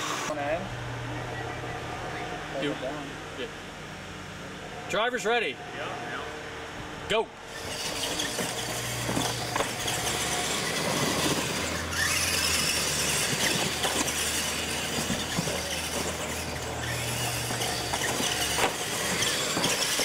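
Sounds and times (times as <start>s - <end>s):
rc truck motors running: 7.4s - 20.0s
tyres scrabbling over dirt: 7.5s - 20.0s.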